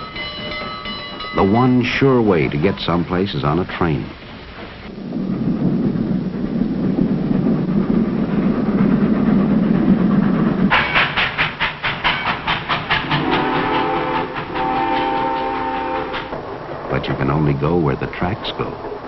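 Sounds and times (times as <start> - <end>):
rhythmic steam train beat: 0.0 - 19.0
steam train rumbling: 0.0 - 19.0
steam train whistle: 13.1 - 16.3.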